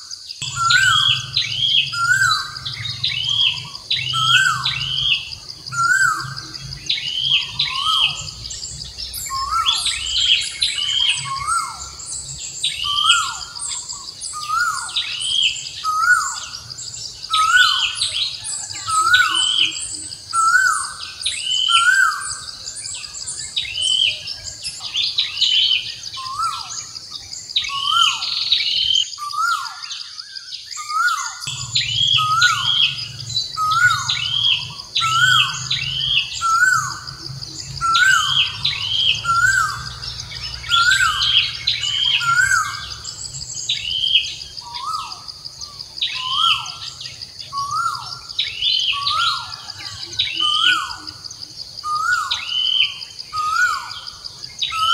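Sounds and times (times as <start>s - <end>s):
birds chirping: 0.0s - 54.9s
high insect drone: 0.0s - 54.9s.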